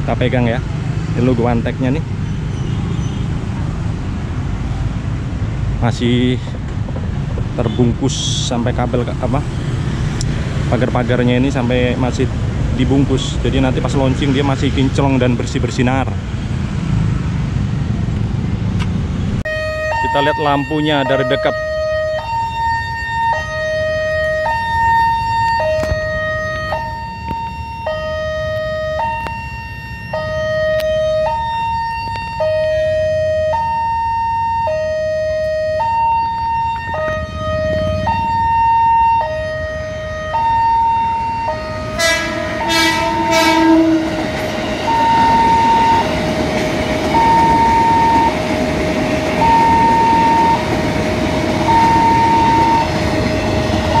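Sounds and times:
level crossing alarm two-tone warning: 19.5 - 54.0
electric train passing: 35.0 - 54.0
train horn blasts: 41.8 - 46.0, 51.6 - 54.0.

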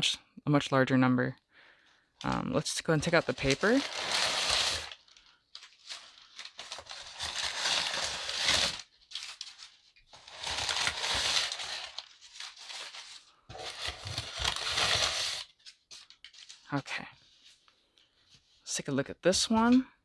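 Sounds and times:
packing paper crinkling and rustling: 2.6 - 16.8.

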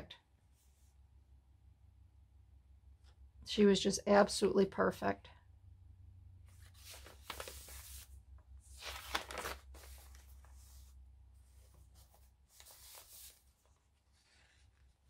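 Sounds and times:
paper rustling: 6.5 - 15.0.

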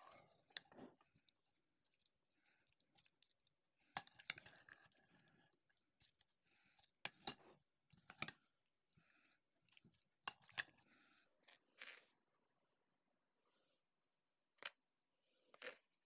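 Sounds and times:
spoon stirring salad in bowl: 0.0 - 8.5, 9.7 - 10.8.

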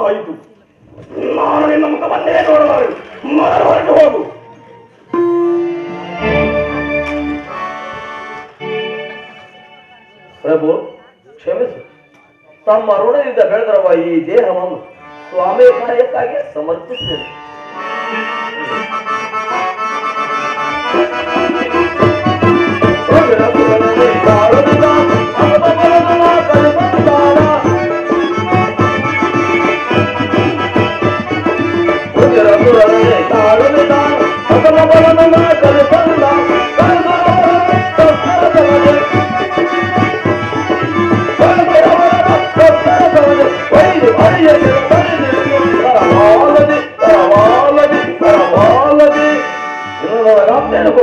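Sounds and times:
harmonium melody: 1.9 - 51.0
tabla drumming: 20.9 - 49.2.

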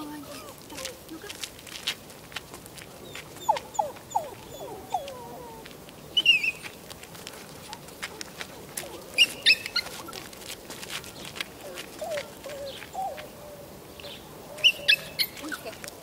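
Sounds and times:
small dog whining and yelping: 3.4 - 6.7, 9.2 - 10.2, 14.6 - 15.7.

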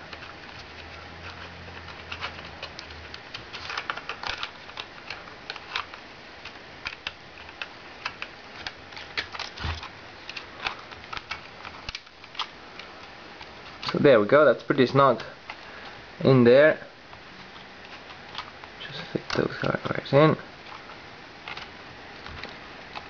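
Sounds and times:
light clicks of plastic parts: 0.1 - 14.0.

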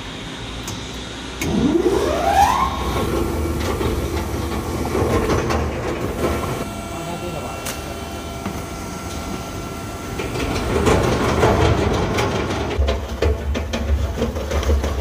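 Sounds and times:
shredder motor starting up: 1.4 - 12.8.

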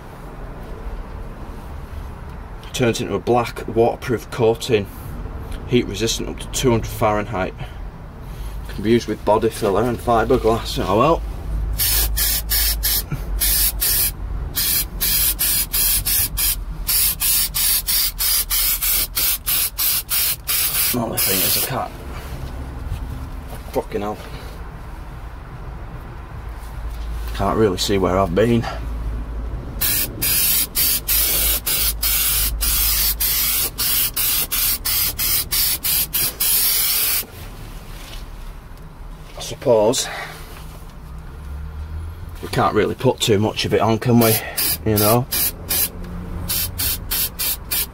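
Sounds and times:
aerosol spray hissing bursts: 11.8 - 21.7, 29.8 - 37.3, 44.2 - 47.9.

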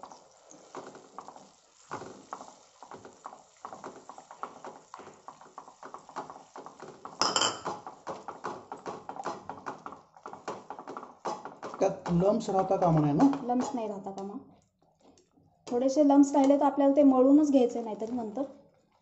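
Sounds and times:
spatula tapping and scraping pan: 0.5 - 14.4.

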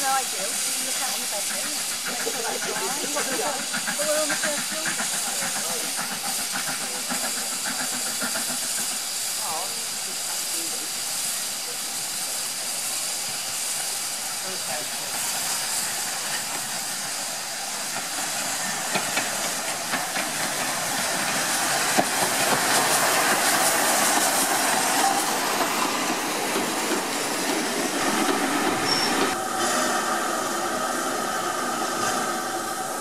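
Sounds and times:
steam locomotive hissing: 0.0 - 33.0
wheels clicking over rail joints: 18.7 - 23.6
held whistle tones: 28.8 - 29.4.

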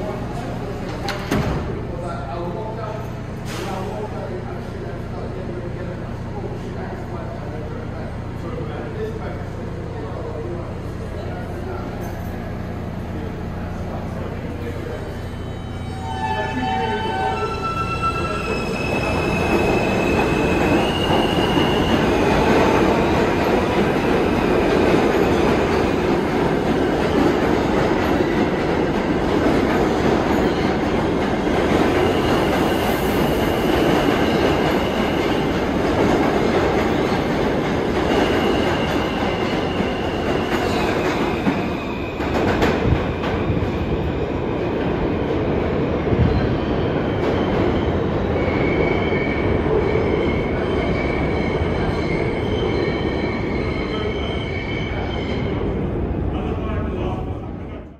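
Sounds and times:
subway train rumble: 0.0 - 57.9
wheel squeal: 15.4 - 22.9.

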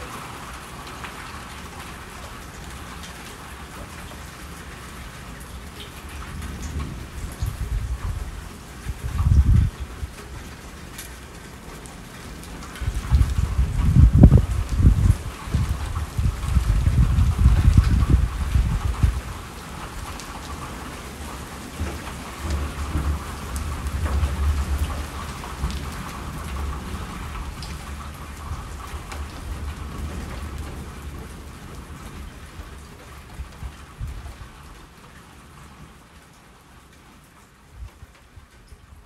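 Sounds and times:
steady rain: 0.0 - 39.0
thunder rolling: 6.3 - 10.2, 12.8 - 19.9.

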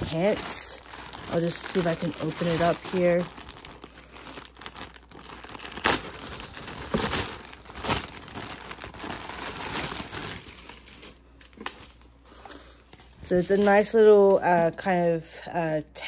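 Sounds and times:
packaging crinkling and tearing: 0.0 - 12.1.

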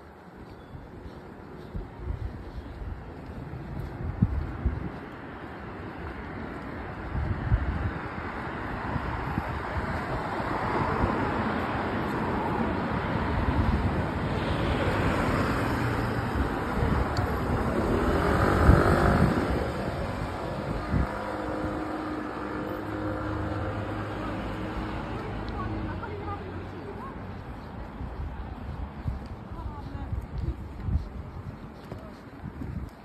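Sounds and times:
cars driving past: 2.5 - 29.4
vehicle passing close: 13.3 - 26.1.

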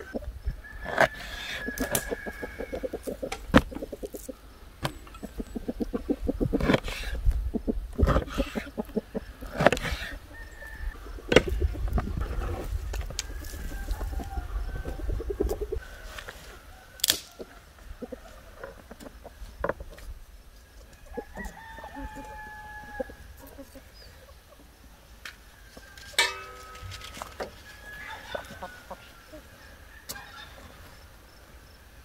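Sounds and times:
hens clucking: 0.0 - 20.1, 20.7 - 31.8
rooster crowing: 0.6 - 3.0, 10.3 - 11.2, 13.2 - 15.2, 21.1 - 23.2, 25.6 - 30.6.

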